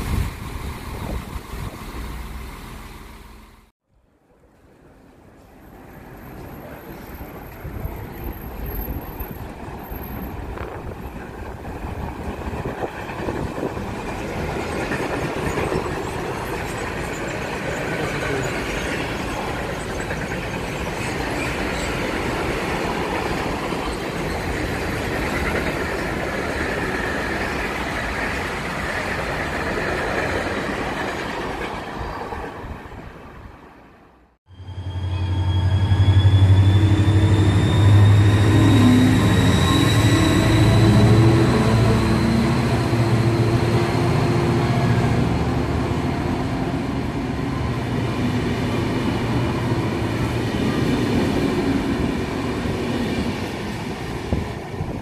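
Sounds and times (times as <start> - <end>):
freight train wheels rumbling on rails: 0.0 - 3.7, 5.5 - 33.8, 35.1 - 55.0.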